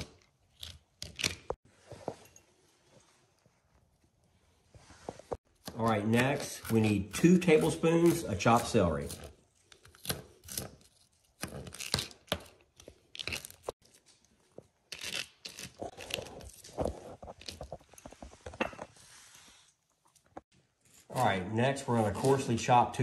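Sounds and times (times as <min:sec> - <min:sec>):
knife scraping pieces on board: 0:00.0 - 0:01.6, 0:05.6 - 0:13.8.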